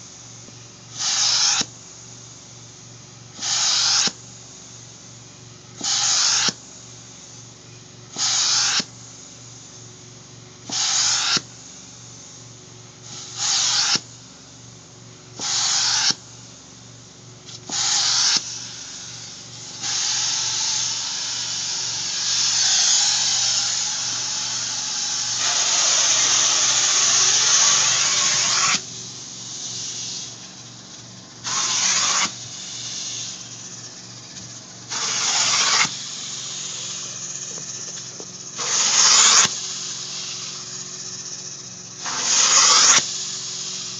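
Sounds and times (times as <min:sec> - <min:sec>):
spray and suction hiss: 0:00.0 - 0:02.3, 0:03.3 - 0:04.9, 0:05.7 - 0:07.5, 0:08.1 - 0:09.8, 0:10.6 - 0:12.1, 0:13.0 - 0:14.3, 0:15.4 - 0:16.6, 0:17.5 - 0:43.9
extractor humming: 0:30.3 - 0:42.3.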